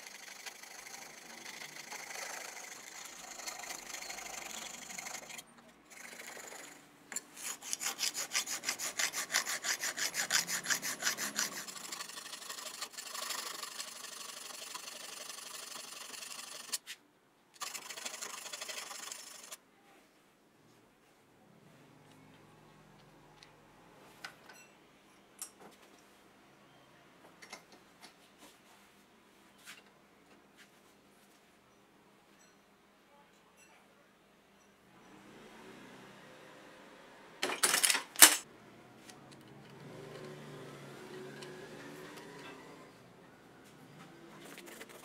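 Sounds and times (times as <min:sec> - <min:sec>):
file rasping in steel sleeve: 0:00.0 - 0:16.8.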